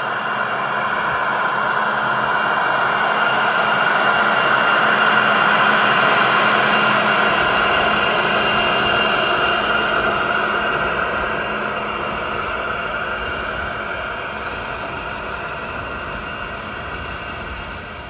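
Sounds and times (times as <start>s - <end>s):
model train wheels on rails: 4.4s - 18.0s.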